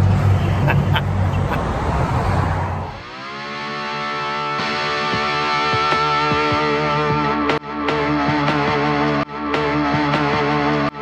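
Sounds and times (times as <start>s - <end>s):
street noise: 0.0s - 11.0s
distorted electric guitar chord: 3.0s - 11.0s
picked guitar notes: 3.0s - 11.0s.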